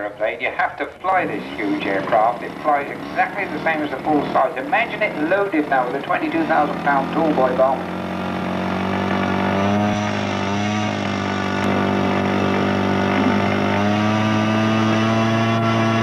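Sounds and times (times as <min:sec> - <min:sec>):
model airplane engines droning: 0:00.0 - 0:16.0.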